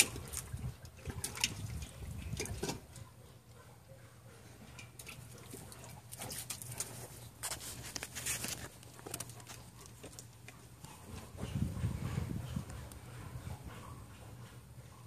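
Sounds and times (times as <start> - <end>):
dog lapping water from metal pot: 0.0 - 3.2, 4.6 - 7.1.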